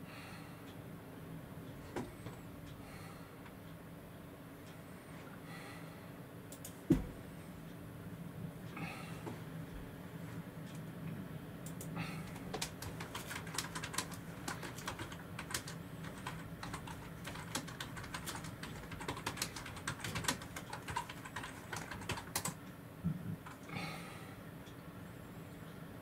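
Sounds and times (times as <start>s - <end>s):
low steady hum: 0.0s - 26.0s
rapid sharp tapping clicks: 11.6s - 22.6s.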